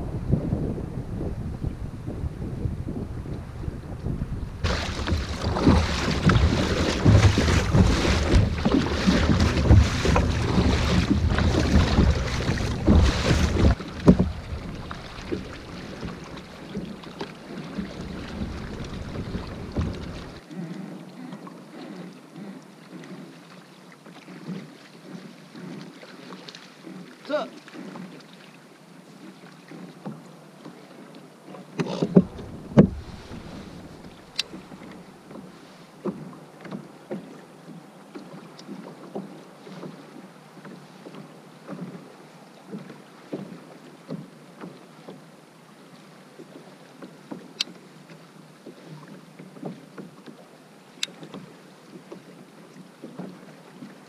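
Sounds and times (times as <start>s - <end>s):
waves lapping against hull: 0.0s - 54.0s
heavy thumps on hull: 4.6s - 20.4s, 31.8s - 35.5s.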